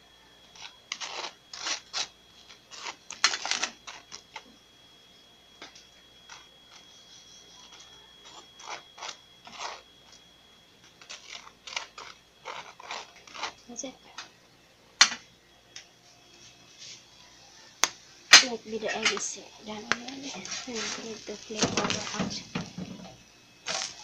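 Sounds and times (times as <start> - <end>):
spatula scraping a plate: 7.6 - 9.8, 11.0 - 13.6.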